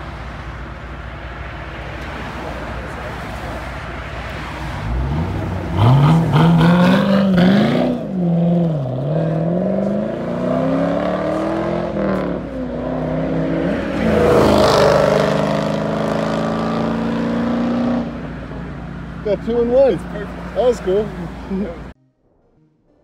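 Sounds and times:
car accelerating hard: 4.2s - 21.9s.

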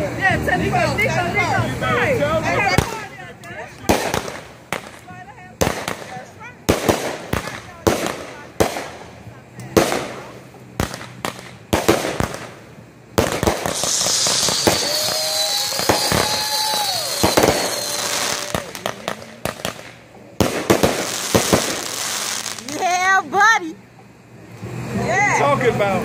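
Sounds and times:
firework fountain hissing spray: 0.0s - 26.0s
fireworks bangs and crackles: 2.4s - 23.5s
high falling whistle: 13.7s - 18.8s.

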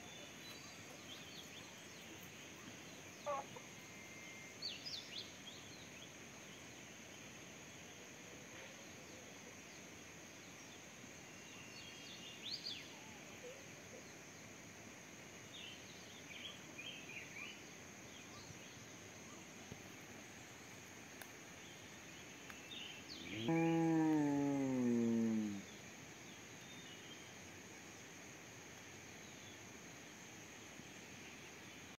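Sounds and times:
high insect drone: 0.0s - 31.9s
cattle mooing: 23.3s - 25.6s.

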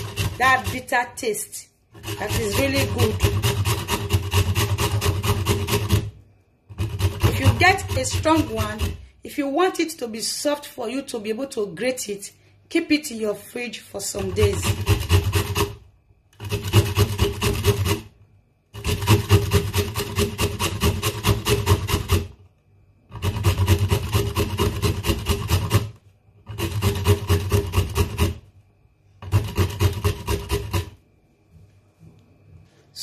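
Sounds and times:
nut rasped on a metal grater: 0.0s - 1.1s, 1.9s - 9.2s, 14.2s - 22.4s, 23.1s - 28.5s, 29.2s - 31.0s.

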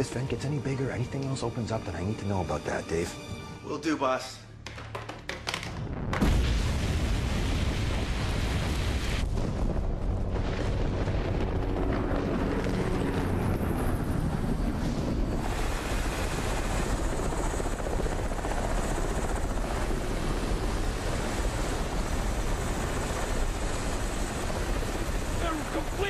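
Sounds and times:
helicopter rotor and engine: 10.2s - 26.0s.

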